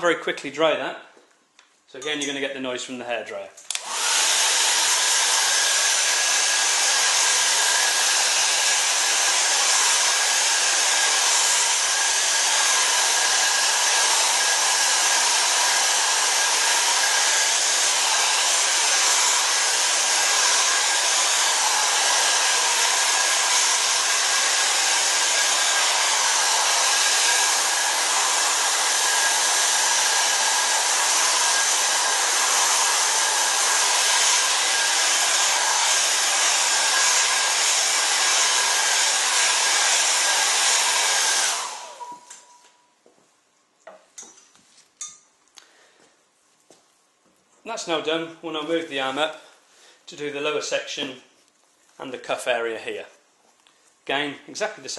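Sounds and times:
hair dryer running: 0:03.7 - 0:42.7.

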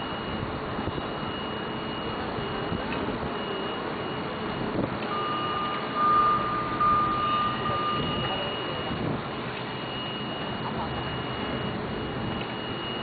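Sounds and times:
steady high-pitched tone: 0:00.0 - 0:13.0
street background noise: 0:00.0 - 0:13.0
faint voices: 0:07.2 - 0:09.2.

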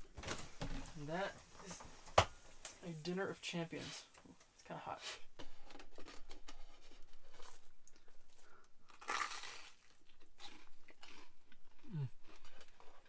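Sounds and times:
chewing: 0:05.6 - 0:13.0
toasted sandwich crunching: 0:05.6 - 0:13.0.

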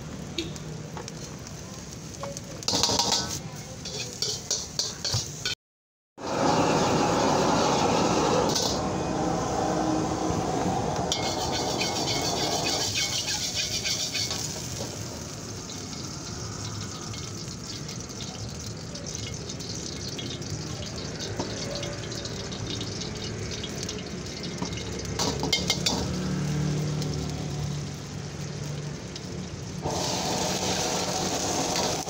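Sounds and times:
hot oil sizzling in a wok: 0:00.0 - 0:05.6, 0:06.2 - 0:32.0
ladle scraping a wok: 0:02.6 - 0:05.6, 0:11.1 - 0:15.0.

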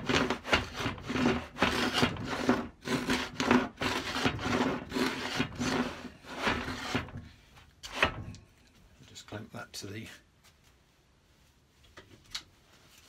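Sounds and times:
plane iron scraping wood: 0:00.0 - 0:08.2.

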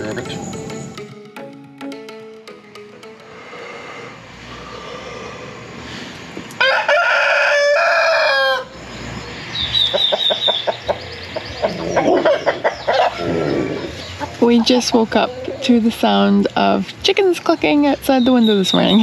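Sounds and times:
rooster crowing: 0:06.6 - 0:08.9, 0:11.6 - 0:14.2
hens clucking: 0:09.7 - 0:16.7.

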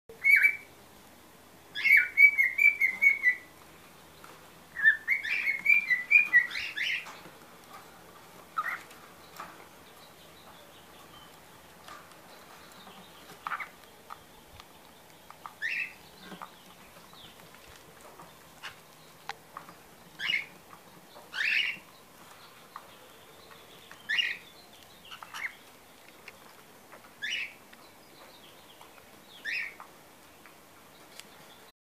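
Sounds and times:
cockatiel whistling song: 0:00.2 - 0:00.7, 0:01.8 - 0:03.4, 0:04.8 - 0:07.0
cockatiels chirping: 0:00.2 - 0:00.7, 0:01.8 - 0:03.5, 0:04.2 - 0:07.2, 0:08.6 - 0:17.4, 0:18.2 - 0:20.6, 0:21.2 - 0:25.8, 0:26.9 - 0:27.6, 0:28.8 - 0:30.0.

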